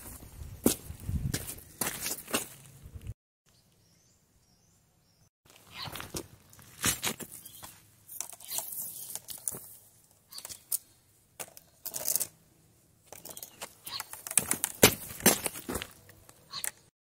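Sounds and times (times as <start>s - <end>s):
plastic pipe handling noise: 6.0s - 10.8s, 13.1s - 16.8s.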